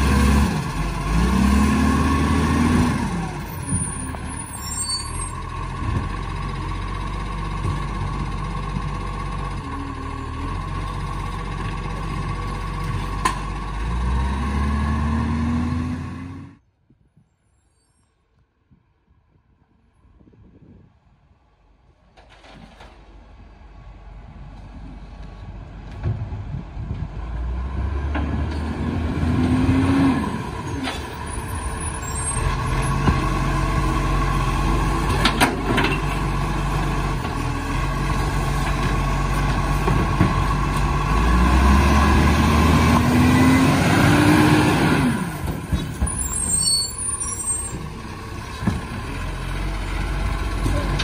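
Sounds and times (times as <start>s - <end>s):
garbage truck diesel engine revving: 0.0s - 16.6s, 27.2s - 51.0s.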